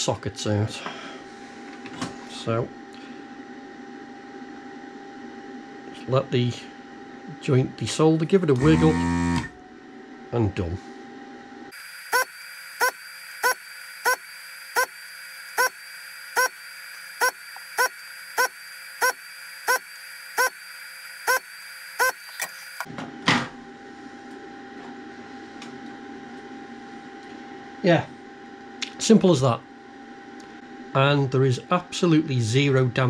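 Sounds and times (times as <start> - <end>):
vacuum pump running: 5.9 - 9.7, 11.7 - 23.0.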